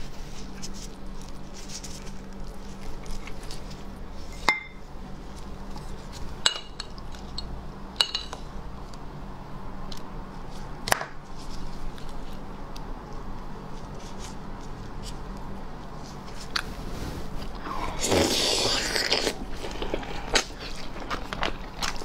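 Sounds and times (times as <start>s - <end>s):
meat handling noise: 0.0s - 9.0s.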